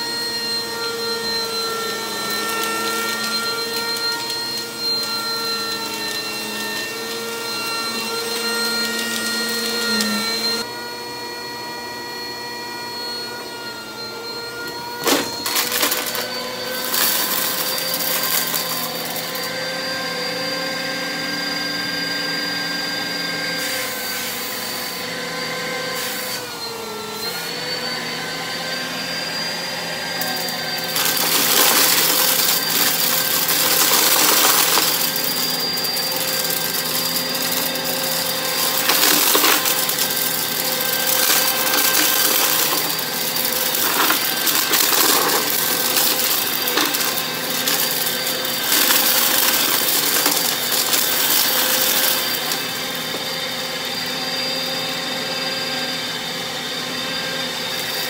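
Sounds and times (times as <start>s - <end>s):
vacuum cleaner running on carpet: 0.0s - 58.0s
debris rattling through vacuum: 0.4s - 10.6s, 14.9s - 19.6s, 30.1s - 53.5s.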